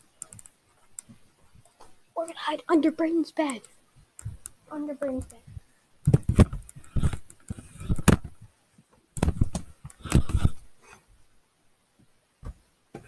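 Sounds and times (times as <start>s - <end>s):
child crawling bumping and scuffing: 5.1s - 8.5s, 9.2s - 10.7s, 12.4s - 13.0s.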